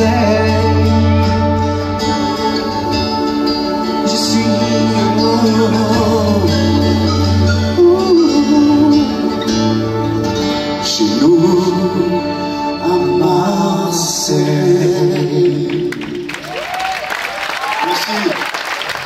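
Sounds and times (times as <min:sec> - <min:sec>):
live rock band playing: 0:00.0 - 0:15.4
man singing: 0:00.0 - 0:16.4.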